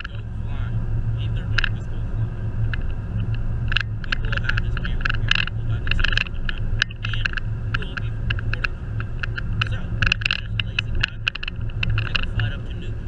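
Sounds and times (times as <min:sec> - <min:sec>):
light clicks and rattles: 0:00.0 - 0:00.6, 0:01.2 - 0:02.0, 0:02.6 - 0:13.0
engine and road rumble: 0:00.0 - 0:13.0.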